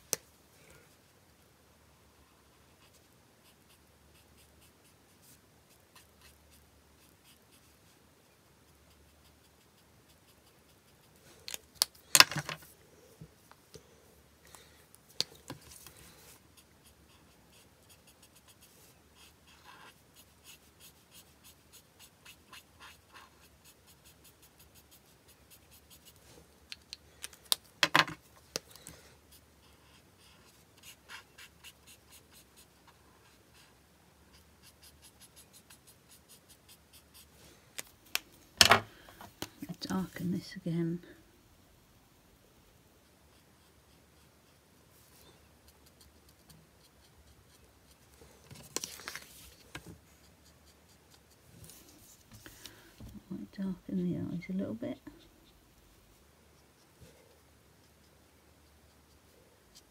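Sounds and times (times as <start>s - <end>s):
card rustling and knocking: 12.1s - 12.7s, 27.8s - 28.2s, 38.6s - 39.5s
marker stroking on card: 15.5s - 26.4s, 29.3s - 37.4s, 48.8s - 52.7s.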